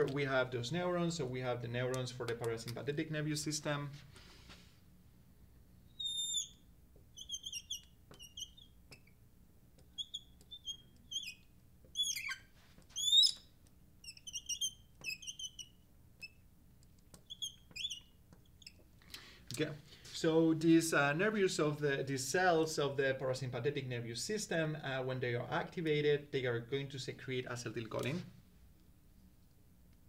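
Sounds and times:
marker squeaking on glass: 5.9 - 9.2, 9.8 - 16.5, 17.1 - 18.9.

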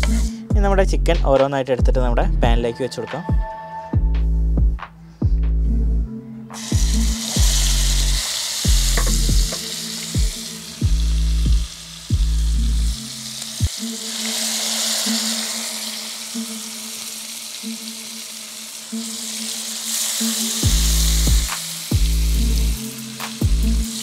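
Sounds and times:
background music with steady beat: 0.0 - 24.0
chicken sizzling in oil: 6.6 - 24.0.

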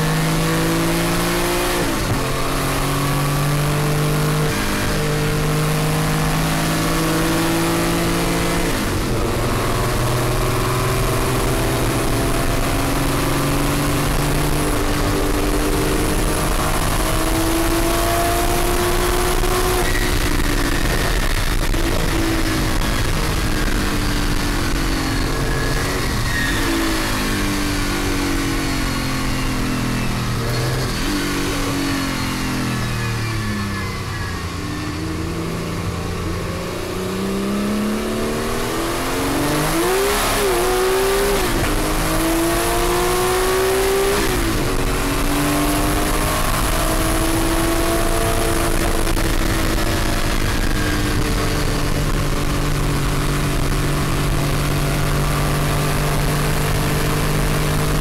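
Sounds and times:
race car engine shifting gears: 38.2 - 58.0.

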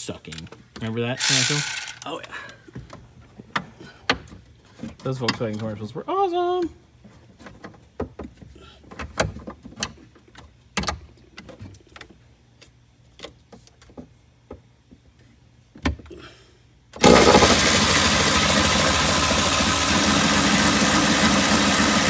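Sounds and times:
loud steady machine noise: 17.0 - 22.0.

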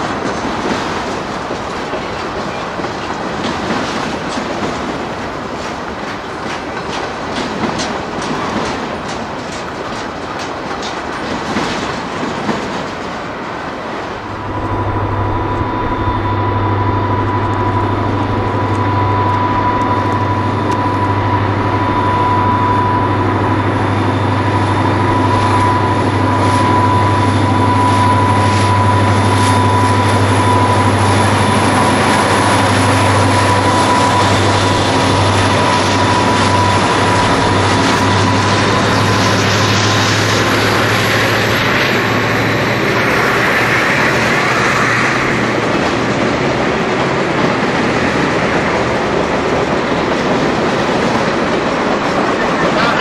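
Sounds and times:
train wheels clicking over rail joints: 0.0 - 53.0
low hum with high whine: 14.2 - 39.2.

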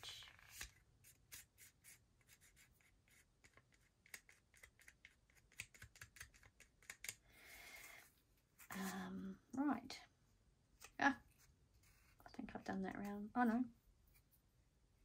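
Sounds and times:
fingers handling cardstock: 0.3 - 7.2.

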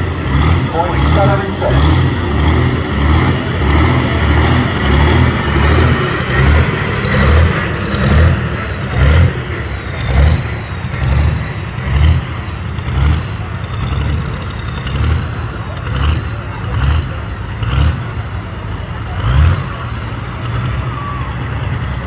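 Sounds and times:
tractor engine pulsing rumble: 0.0 - 22.0.

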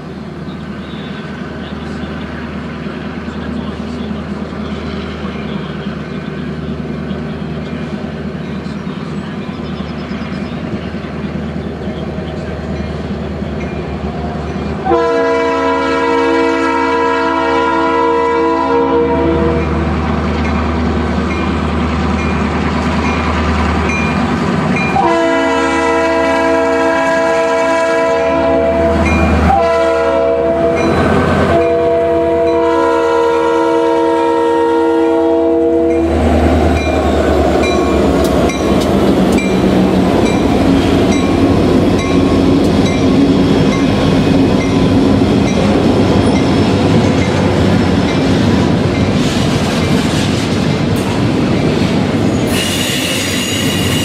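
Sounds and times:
locomotive air horn: 14.8 - 19.8, 24.9 - 36.1
freight cars rolling past: 35.9 - 54.0.

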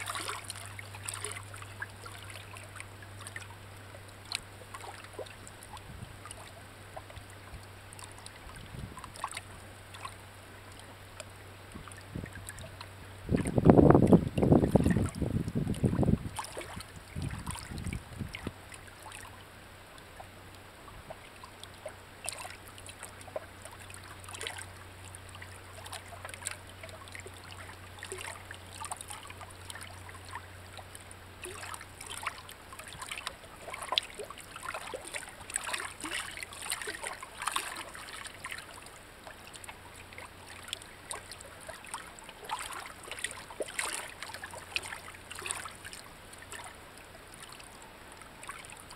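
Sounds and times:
low rumble on microphone: 0.0 - 36.8
stream trickling over rocks: 0.0 - 48.9.

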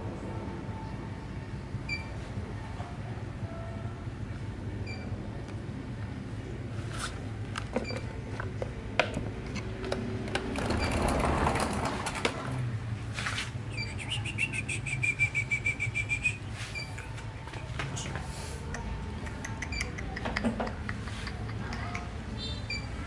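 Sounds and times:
low background hum: 0.0 - 23.0
rapid trill of chirps: 13.7 - 16.4.

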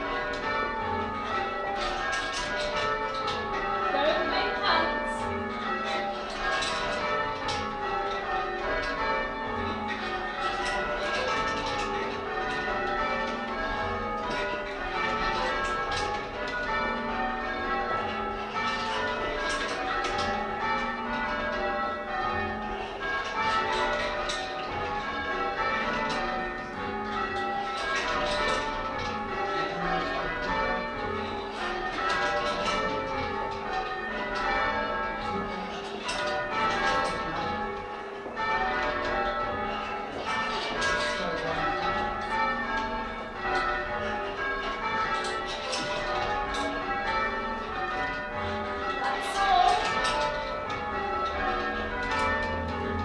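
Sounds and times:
church bells ringing: 0.0 - 53.0.

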